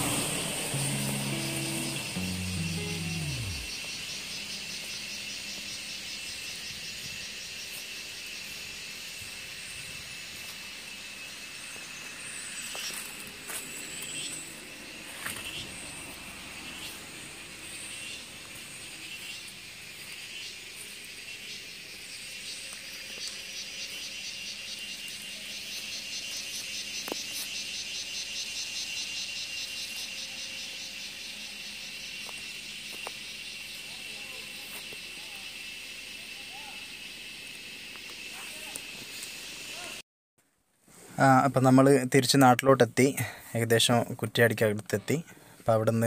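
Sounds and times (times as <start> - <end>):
vehicle driving: 0.0 - 6.3, 13.3 - 19.7
fast-pulsing insect chorus: 0.0 - 40.0
high-pitched insects buzzing: 0.0 - 40.0.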